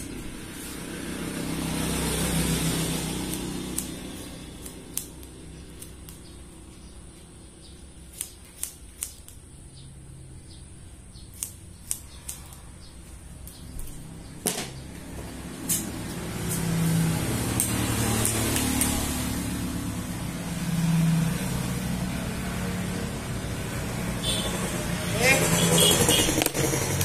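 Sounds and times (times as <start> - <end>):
scissors snipping hair: 2.3 - 6.5, 8.0 - 9.5, 11.3 - 12.8, 15.6 - 19.3.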